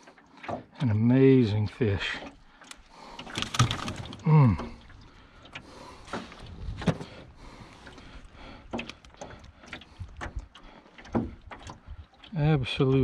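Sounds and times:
light knocks and clicks: 8.7 - 12.3.

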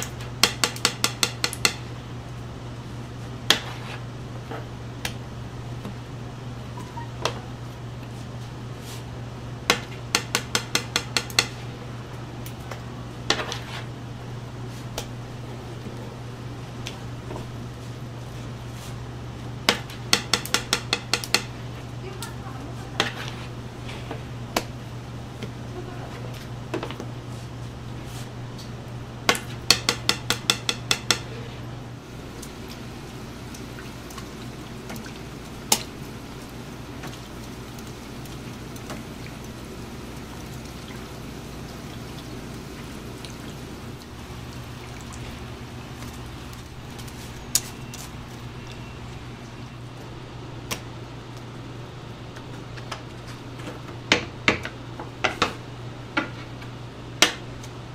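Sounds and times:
steady low hum: 0.0 - 57.9
food frying in oil: 32.0 - 49.9.

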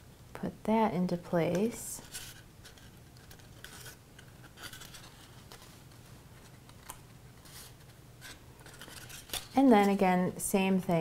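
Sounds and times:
cardstock rustling and scraping: 1.5 - 10.1.

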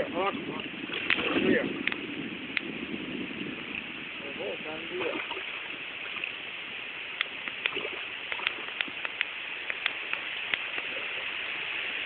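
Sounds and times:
fish splashing at water surface: 0.6 - 2.0, 4.9 - 6.4, 7.2 - 11.2.

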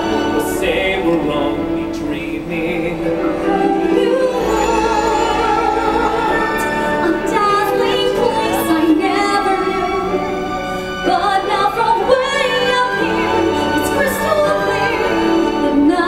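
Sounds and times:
instrumental accompaniment: 0.0 - 16.0.

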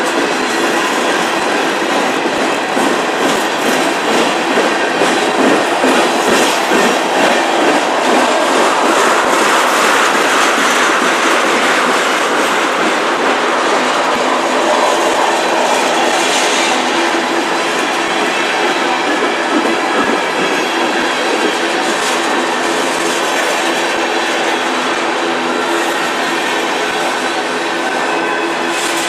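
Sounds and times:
freight train wheels rumbling: 0.0 - 29.0.

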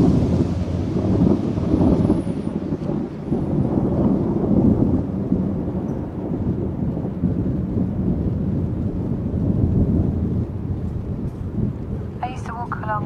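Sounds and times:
thunder rumbling: 0.0 - 13.0.

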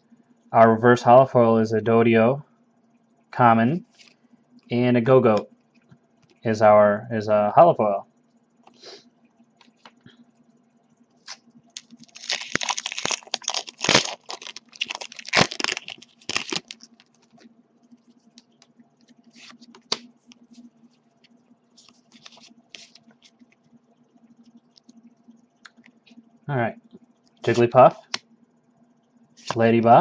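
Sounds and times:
foil wrapper crinkling and tearing: 11.3 - 17.4
trading cards clicking and rustling: 11.3 - 17.5, 18.4 - 20.4, 21.8 - 23.6.

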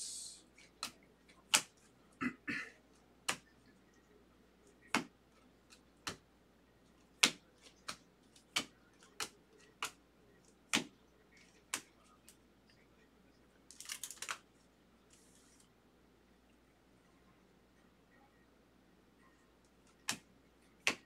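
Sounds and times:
trading cards snapping: 0.6 - 1.8, 7.2 - 10.0, 10.7 - 10.9, 13.7 - 14.4.

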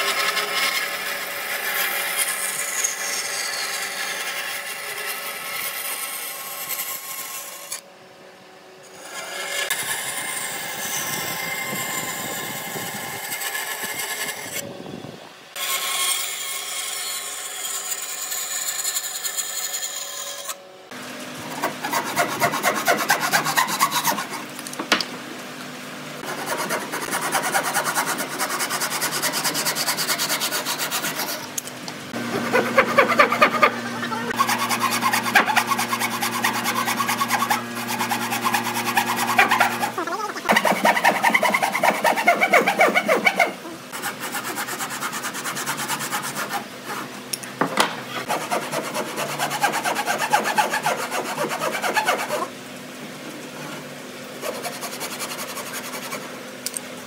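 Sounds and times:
hand saw cutting wood: 0.0 - 7.8, 8.9 - 14.6, 21.4 - 24.5, 26.2 - 47.2, 48.1 - 52.6, 53.6 - 56.3.

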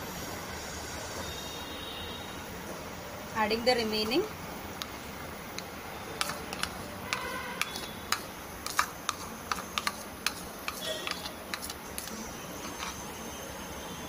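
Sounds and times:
metal spoon scraping ceramic bowl: 6.2 - 13.1.

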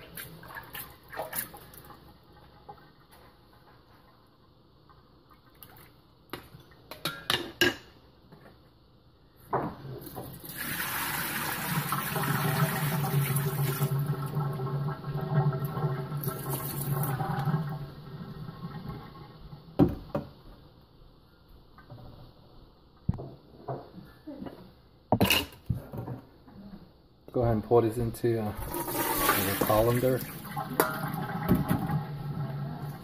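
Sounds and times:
water pouring into steel sink: 10.3 - 19.4, 28.6 - 33.0.

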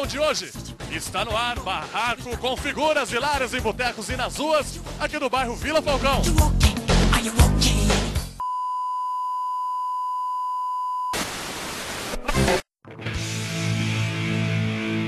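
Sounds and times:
music: 0.0 - 8.4, 12.3 - 15.0
television test beep: 8.4 - 11.2
tv static hiss: 11.2 - 12.6.

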